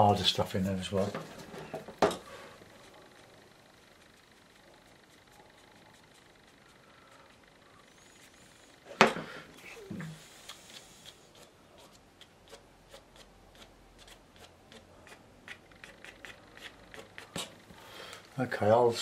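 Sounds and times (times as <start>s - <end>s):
brush dabbing on paper: 2.6s - 8.6s, 11.1s - 17.5s.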